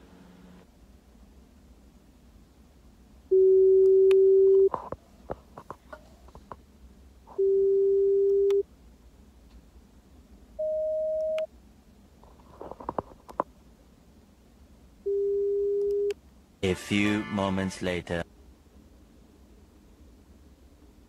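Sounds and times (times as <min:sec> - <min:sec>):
pure-tone beeps: 0:10.6 - 0:11.5.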